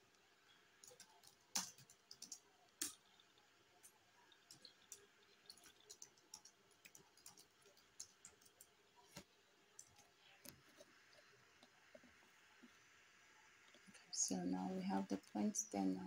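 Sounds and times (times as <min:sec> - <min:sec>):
computer keyboard typing: 0:00.8 - 0:10.1.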